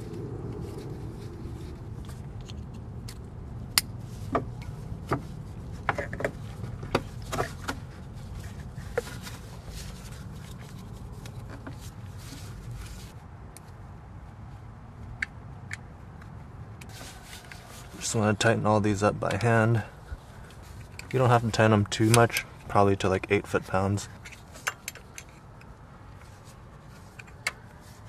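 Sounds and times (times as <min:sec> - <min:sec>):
steady low rumble: 0:00.0 - 0:16.9
sharp clicks and light knocks: 0:19.2 - 0:19.6, 0:24.1 - 0:26.3, 0:27.0 - 0:27.7.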